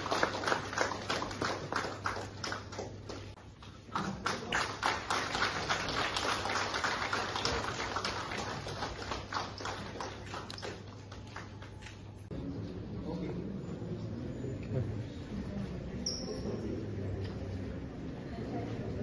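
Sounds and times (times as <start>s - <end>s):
crowd clapping: 0.0s - 12.3s.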